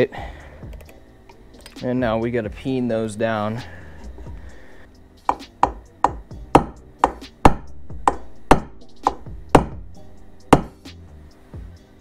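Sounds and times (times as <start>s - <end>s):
hammer striking metal: 5.3s - 9.8s, 10.5s - 10.8s.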